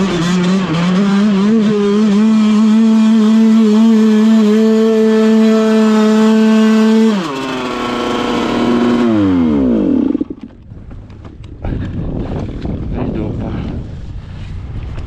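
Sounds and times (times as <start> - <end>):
two-stroke engine revving: 0.0 - 10.6.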